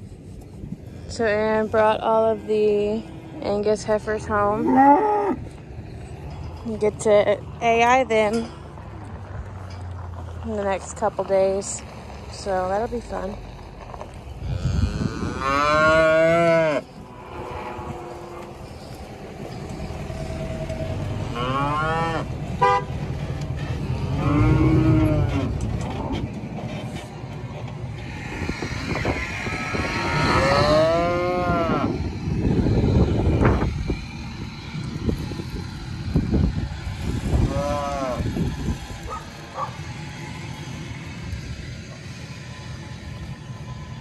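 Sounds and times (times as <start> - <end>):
steady low rumble: 0.0 - 44.0
cattle mooing: 1.1 - 5.6, 14.4 - 18.6, 21.2 - 22.3, 23.9 - 26.2, 28.0 - 32.0, 37.3 - 38.3.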